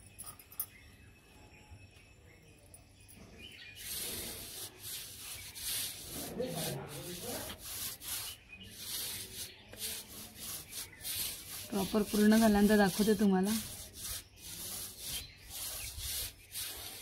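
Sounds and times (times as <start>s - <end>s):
powder rubbed between fingers: 3.8s - 17.0s.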